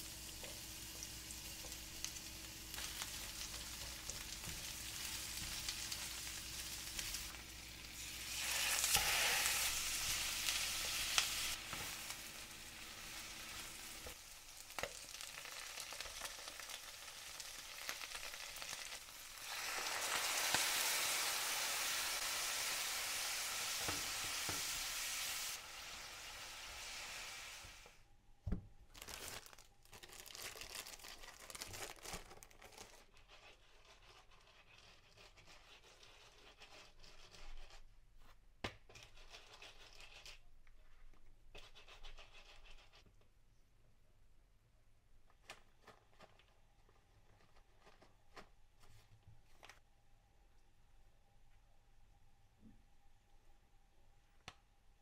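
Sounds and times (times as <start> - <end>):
food sizzling in a pan: 0.0 - 28.0.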